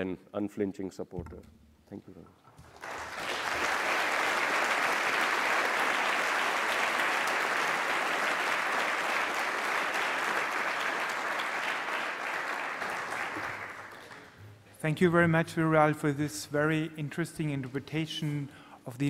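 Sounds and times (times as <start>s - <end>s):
audience applauding: 2.6s - 14.4s.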